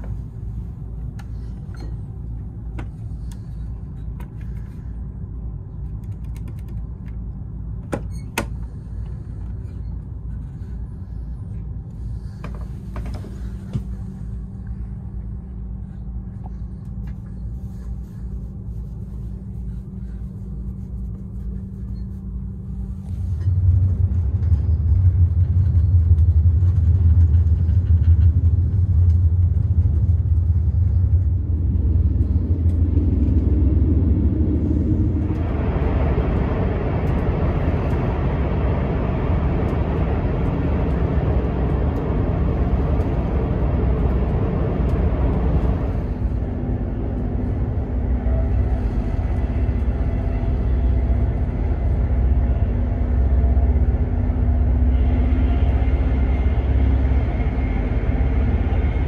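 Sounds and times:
train low rumble: 0:00.0 - 0:59.0
broad rushing noise: 0:29.5 - 0:59.0.

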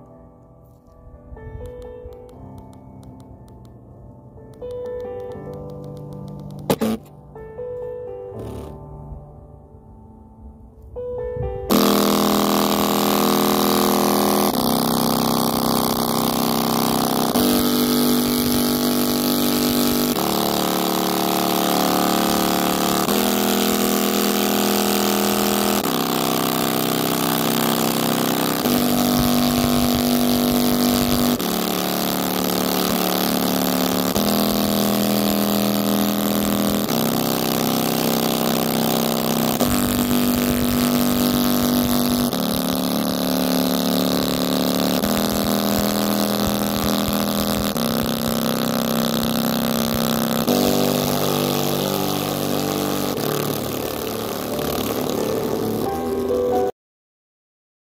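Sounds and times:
rough speaker buzz: 0:04.6 - 0:07.2, 0:08.3 - 0:08.9, 0:11.4 - 0:56.7
bass-heavy music from speaker: 0:50.5 - 0:56.7.

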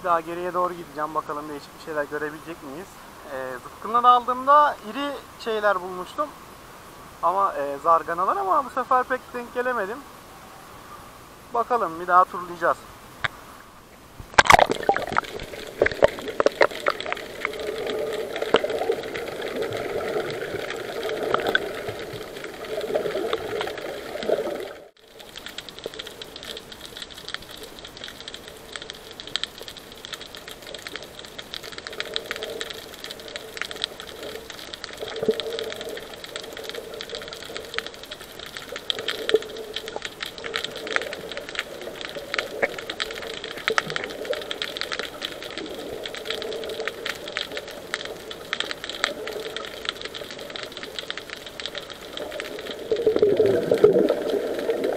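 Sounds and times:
muffled swishes of water: 0:00.1 - 0:54.9
fine crackling clicks underwater: 0:11.9 - 0:54.9.

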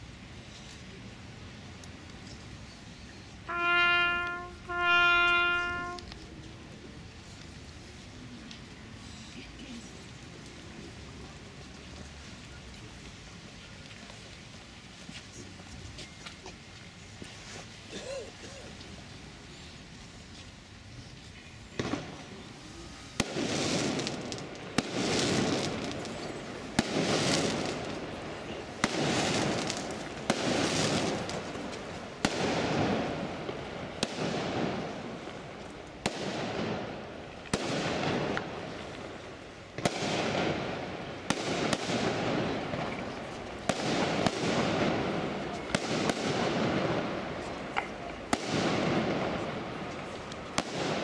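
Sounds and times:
fireworks bangs: 0:03.4 - 0:06.3, 0:21.7 - 0:51.0.

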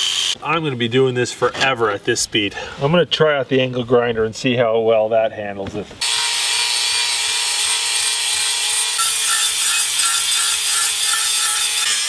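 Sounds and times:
angle grinder grinding metal: 0:00.0 - 0:00.4, 0:06.0 - 0:12.0.

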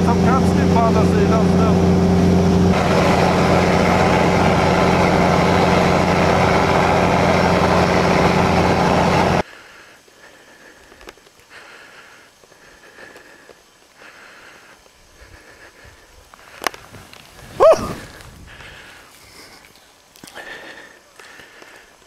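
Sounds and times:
diesel engine running: 0:00.0 - 0:09.4
people moving through deep snow: 0:02.7 - 0:22.0
heavy wind noise: 0:15.2 - 0:19.1.

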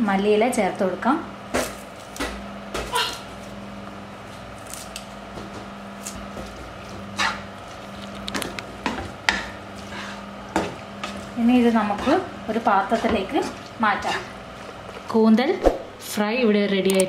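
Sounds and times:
steady low hum: 0:00.0 - 0:17.0
spatula knocking against pan: 0:08.8 - 0:09.6
wooden spatula scraping frying pan: 0:08.9 - 0:14.4.

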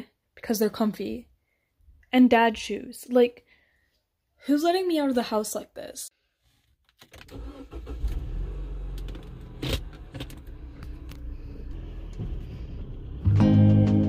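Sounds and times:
car engine rumbling: 0:07.1 - 0:13.6
music: 0:12.7 - 0:14.0.

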